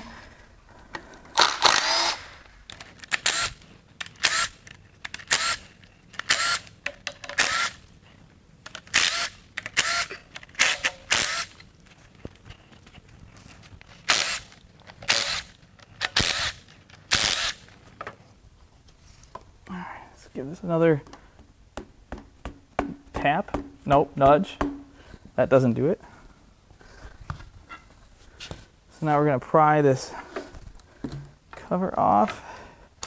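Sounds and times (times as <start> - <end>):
cordless drill whirring: 1.4 - 2.4, 6.3 - 6.6, 7.4 - 7.8, 9.0 - 11.5, 14.1 - 14.4.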